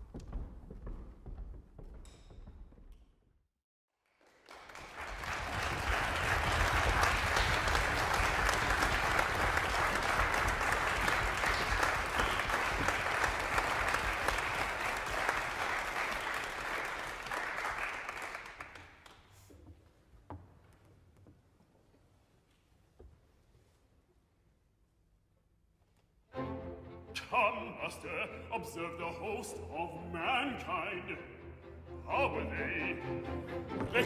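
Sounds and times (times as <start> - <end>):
audience applause: 4.0 - 19.2.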